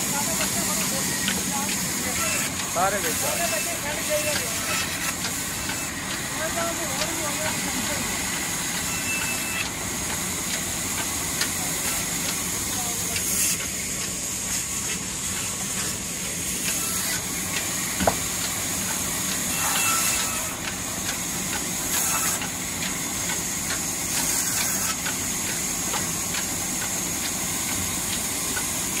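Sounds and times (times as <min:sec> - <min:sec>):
diesel engine beat: 0:00.0 - 0:04.6, 0:05.2 - 0:19.5
band saw cutting wood: 0:00.0 - 0:29.0.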